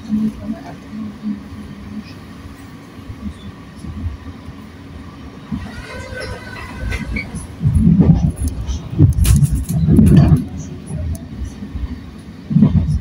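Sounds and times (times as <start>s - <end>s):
train wheels rumbling on track: 0.0s - 13.0s
train bumps: 5.4s - 13.0s.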